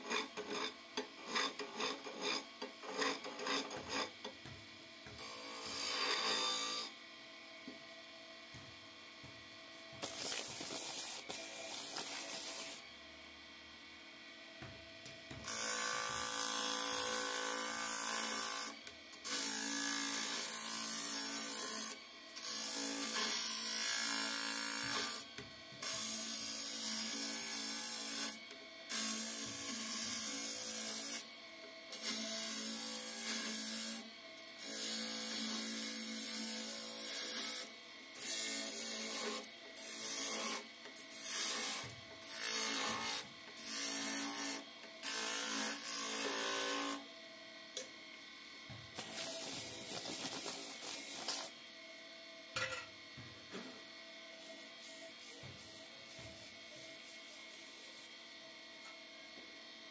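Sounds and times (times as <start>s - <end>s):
gouge scraping wood on lathe: 0.0s - 4.2s.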